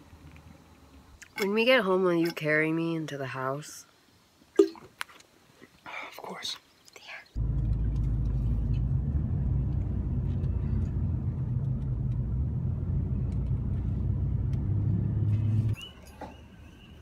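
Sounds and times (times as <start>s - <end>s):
car engine and road rumble: 7.4s - 16.0s.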